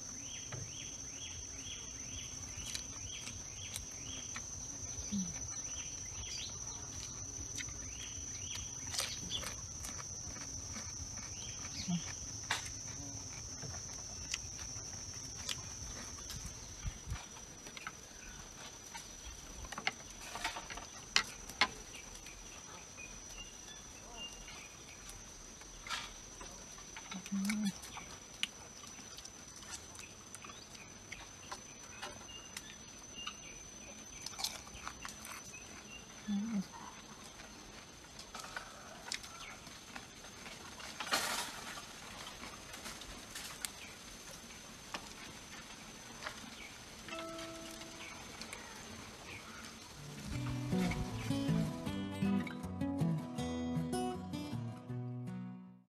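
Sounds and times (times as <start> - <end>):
crickets trilling: 0.0 - 52.0
shrimp peeling and chewing: 2.4 - 16.6, 34.2 - 37.2
faint high whine: 46.9 - 52.6.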